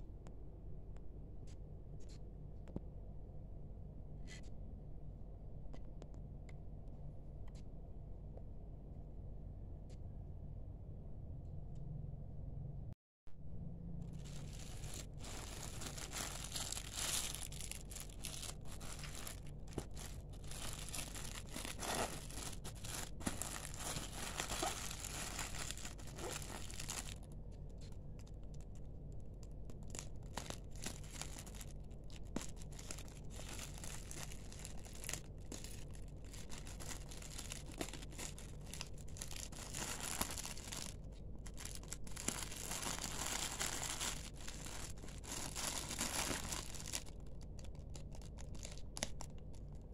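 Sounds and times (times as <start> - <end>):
plastic wrapping crinkling and tearing: 14.1 - 27.3, 29.4 - 49.9.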